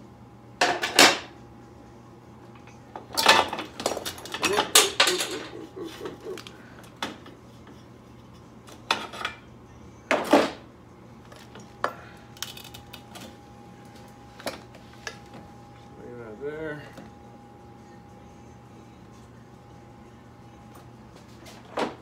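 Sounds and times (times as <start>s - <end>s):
metal tools and parts clanking: 3.2s - 5.5s.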